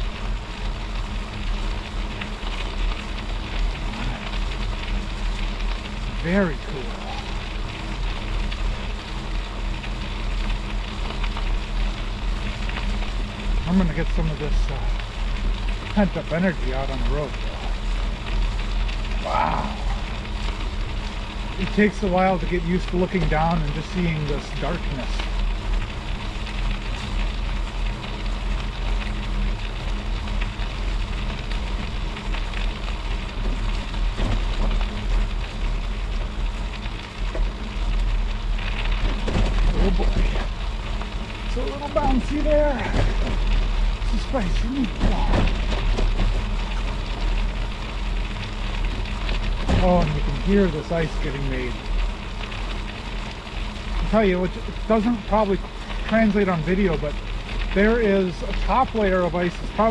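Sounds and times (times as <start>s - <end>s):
low rumble: 0.0s - 59.9s
tyre crackling over ice: 0.0s - 59.9s
tyre crackling on ice: 30.4s - 59.9s.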